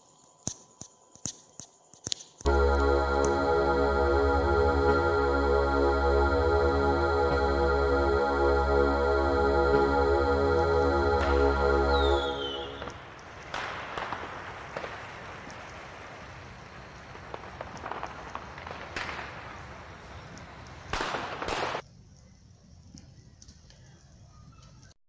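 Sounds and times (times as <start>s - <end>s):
fire crackling: 2.1s - 21.8s.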